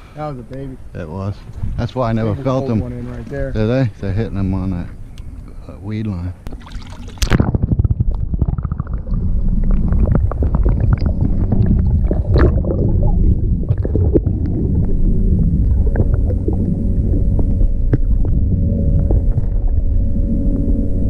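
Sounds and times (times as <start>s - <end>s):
underwater water rumble: 6.4s - 21.0s.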